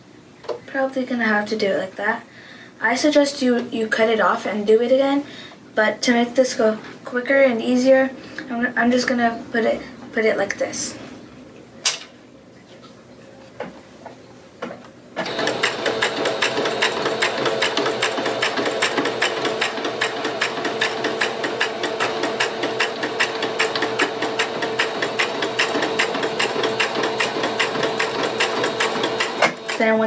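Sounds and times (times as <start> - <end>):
sewing machine stitching: 15.2 - 30.0.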